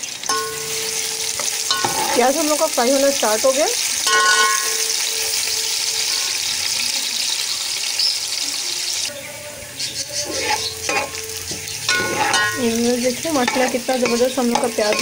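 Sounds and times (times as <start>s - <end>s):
onions sizzling in hot oil: 0.0s - 15.0s
metal ladle scraping pot: 0.3s - 2.4s, 10.2s - 15.0s.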